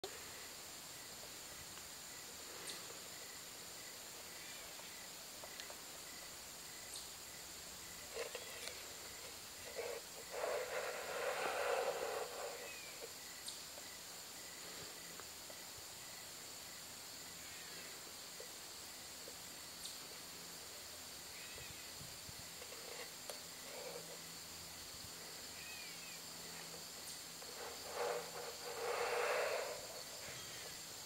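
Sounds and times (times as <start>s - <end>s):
pulsing insect chirp: 0.1s - 31.0s
insects singing high tones: 4.2s - 16.3s, 21.2s - 31.0s
rustling: 7.9s - 13.1s, 26.3s - 31.0s.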